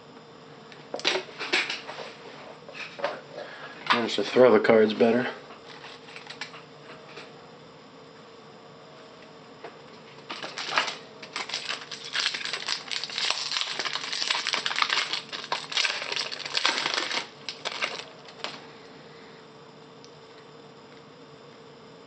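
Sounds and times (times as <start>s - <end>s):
wrapper crinkling and tearing: 10.3s - 18.6s.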